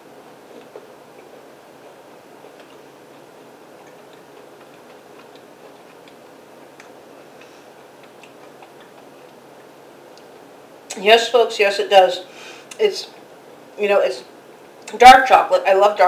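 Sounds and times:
low room hum: 0:00.0 - 0:16.0
chewing crunches: 0:00.4 - 0:10.3.

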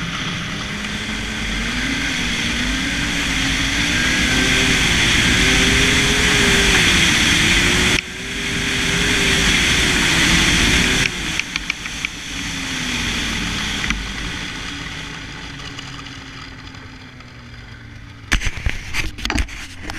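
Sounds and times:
wind rush: 0:00.0 - 0:14.6
snowmobile engine running: 0:00.0 - 0:19.9.

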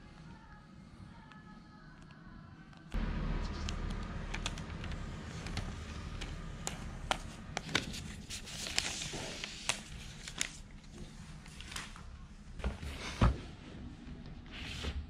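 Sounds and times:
steady low hum: 0:00.0 - 0:14.5
paper wrap rustling: 0:03.5 - 0:12.1.

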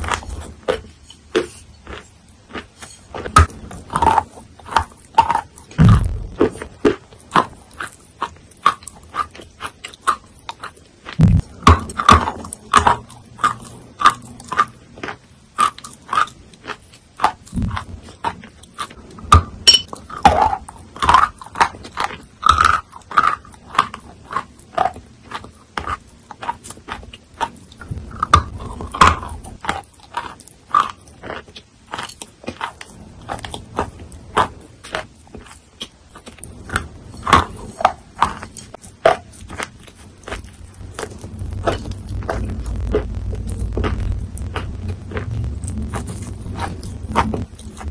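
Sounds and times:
wet crunching of chewed chalk: 0:00.0 - 0:47.9.

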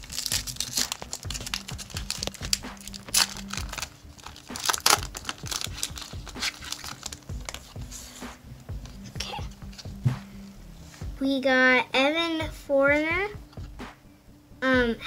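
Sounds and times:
wrapper tearing and crinkling: 0:00.0 - 0:07.8.

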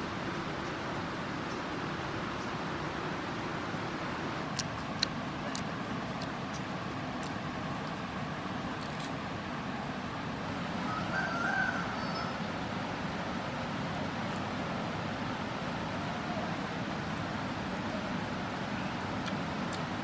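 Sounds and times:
outdoor rumble and hiss: 0:00.0 - 0:20.0
fruit being pulled apart: 0:04.5 - 0:08.1, 0:08.7 - 0:09.2.

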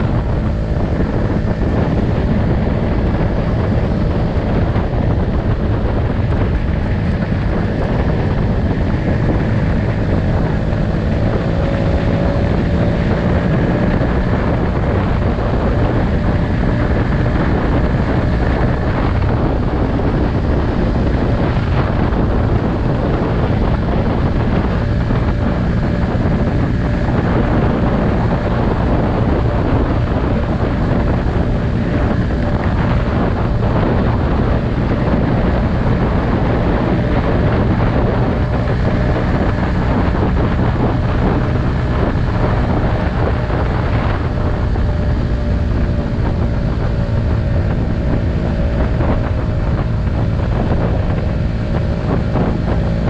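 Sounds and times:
scooter engine hum: 0:00.0 - 0:53.0
tyres on road: 0:00.0 - 0:53.0
wind buffeting microphone: 0:00.0 - 0:53.0.

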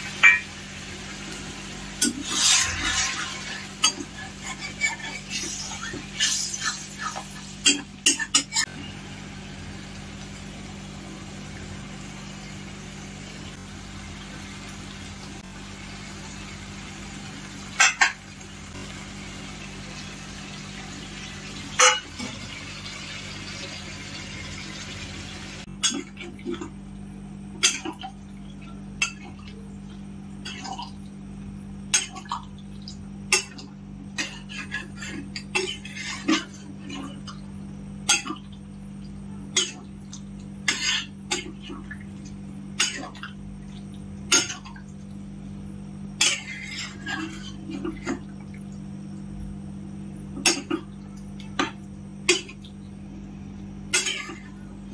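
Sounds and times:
steady low hum: 0:23.8 - 0:54.9.

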